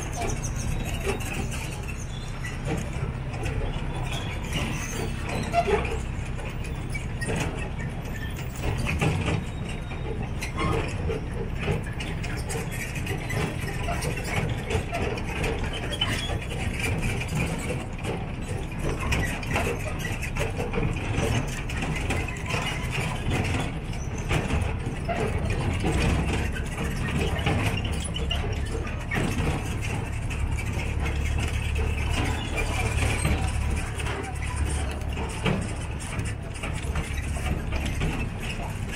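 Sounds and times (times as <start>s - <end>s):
carriages rattling and clicking: 0.0s - 38.9s
low engine rumble: 0.0s - 38.9s.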